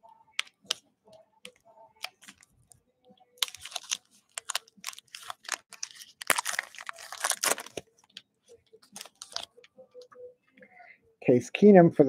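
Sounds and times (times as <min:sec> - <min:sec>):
trading card packaging crackling: 0:03.4 - 0:08.2, 0:08.8 - 0:09.6.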